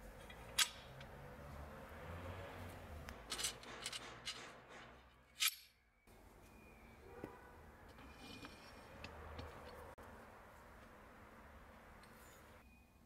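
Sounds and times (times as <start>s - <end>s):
metal clicks: 0.2s - 1.2s
metal fittings knocking and scraping: 3.1s - 5.7s, 7.2s - 9.9s.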